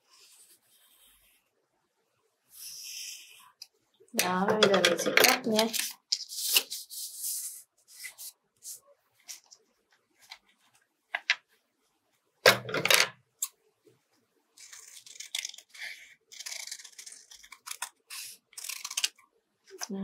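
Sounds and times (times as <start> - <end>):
scissors snipping paper: 14.6 - 20.0.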